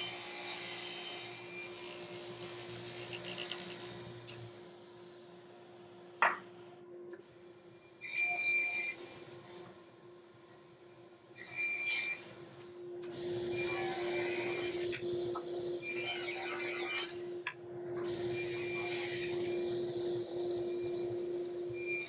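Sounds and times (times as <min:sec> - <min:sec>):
saw blade cutting wood: 0:00.0 - 0:04.0
table saw humming: 0:13.2 - 0:17.3.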